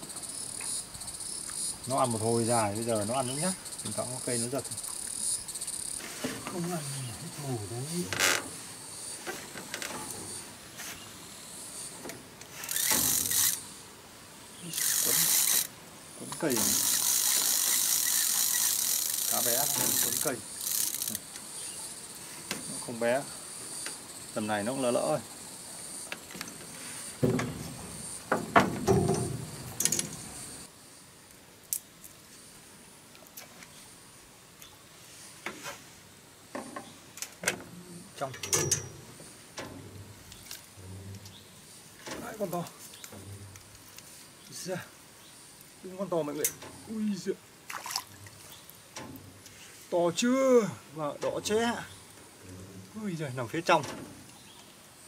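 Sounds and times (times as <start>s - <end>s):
high insect buzz: 0.0s - 55.0s
fishing reel clicks: 12.6s - 13.6s, 14.7s - 15.7s, 16.6s - 21.2s
fishing reel whirring: 12.6s - 13.7s, 14.6s - 15.7s, 16.5s - 21.2s.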